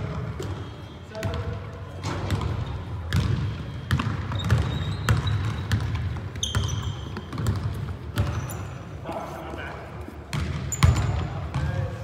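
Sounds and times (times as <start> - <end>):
sneakers squeaking on floor: 0.0 - 12.0
basketball bouncing on wooden floor: 2.1 - 8.4, 10.3 - 11.8.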